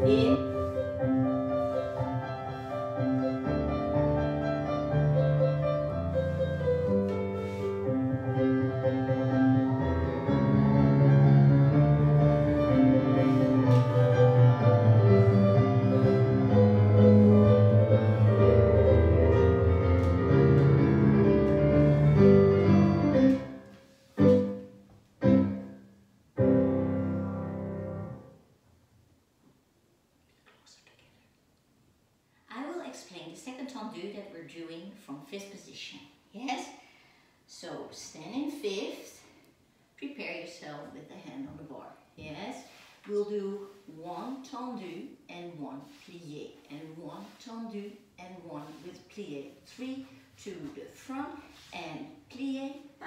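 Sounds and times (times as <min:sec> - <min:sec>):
solo piano accompaniment: 0:00.0 - 0:28.4.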